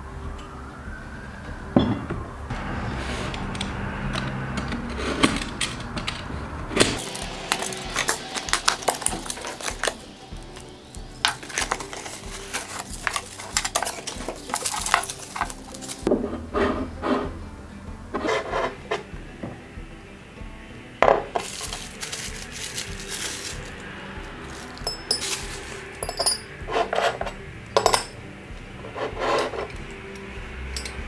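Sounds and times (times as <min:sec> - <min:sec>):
china clinking: 0:04.1 - 0:17.3, 0:21.0 - 0:28.2, 0:30.7 - 0:31.0
cardboard and bubble wrap crackling: 0:06.8 - 0:16.5, 0:21.1 - 0:27.1.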